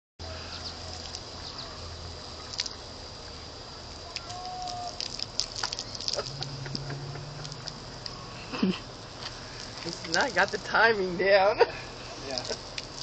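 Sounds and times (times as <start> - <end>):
sprinkler spraying on grass: 0.2 - 13.0
small ticks and splashes: 0.5 - 11.2, 12.2 - 13.0.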